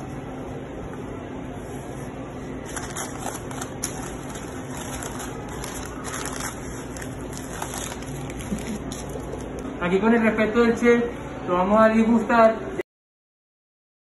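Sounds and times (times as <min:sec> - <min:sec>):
steady low hum: 0:00.0 - 0:12.8
paper wrapper crinkling: 0:02.6 - 0:09.7.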